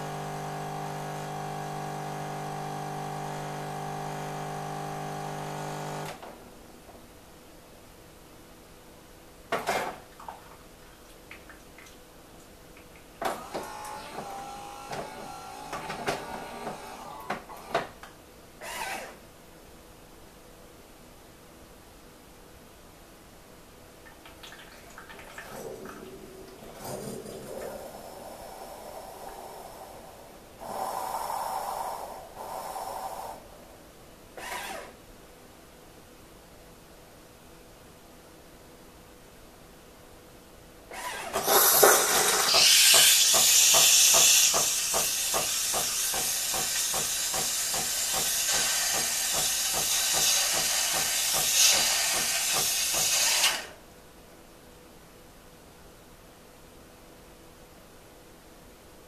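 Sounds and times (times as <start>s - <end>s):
coffee machine hiss: 0.0s - 6.1s, 30.6s - 33.4s, 41.4s - 53.7s
coffee machine pump whine: 0.0s - 6.2s, 13.2s - 17.9s, 41.0s - 53.5s.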